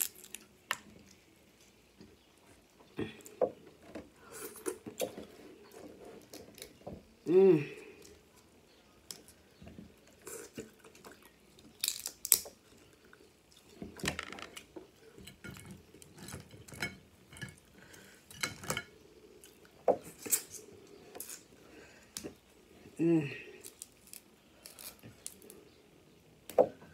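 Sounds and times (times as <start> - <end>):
crab shells cracking: 0.0 - 0.9, 10.7 - 12.7, 23.6 - 25.6.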